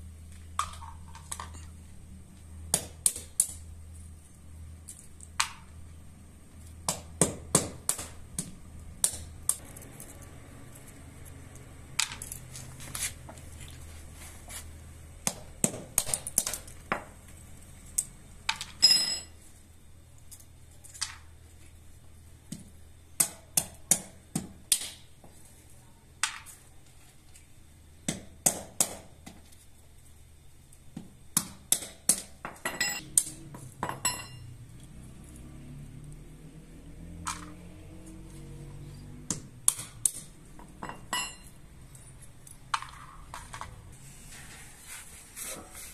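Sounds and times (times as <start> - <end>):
hammer cracking nuts on stone: 2.6 - 3.8, 4.8 - 5.8, 6.6 - 10.1, 11.9 - 12.6, 15.2 - 19.3, 22.5 - 25.4, 28.0 - 29.5, 30.9 - 34.3, 39.1 - 43.8.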